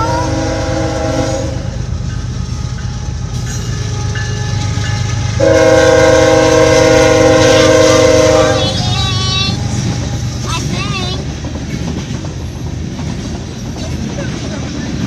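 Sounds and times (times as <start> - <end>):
locomotive air horn chord: 0.0 - 1.9, 2.5 - 9.0
train rumbling: 0.0 - 15.0.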